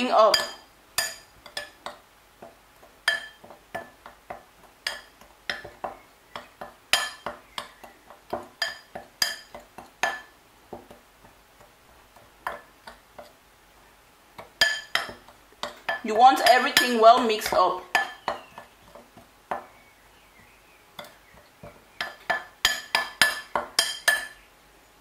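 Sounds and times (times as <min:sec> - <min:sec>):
metal spoon clinking on glass bowl: 0:00.3 - 0:01.8, 0:03.0 - 0:03.9, 0:06.4 - 0:07.7, 0:08.6 - 0:10.3, 0:14.6 - 0:18.6, 0:22.0 - 0:24.4.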